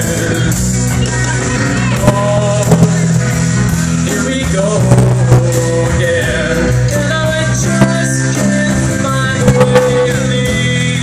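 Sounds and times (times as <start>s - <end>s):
acoustic guitar: 0.0s - 11.0s
drum kit: 0.0s - 11.0s
electric bass: 0.0s - 11.0s
sharp drum hits: 2.1s - 3.8s, 7.7s - 10.8s.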